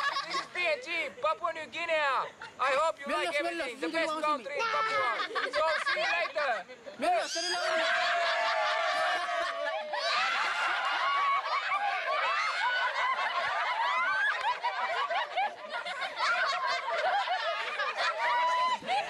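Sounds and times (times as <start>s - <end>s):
children laughing and shouting: 0.0s - 19.0s.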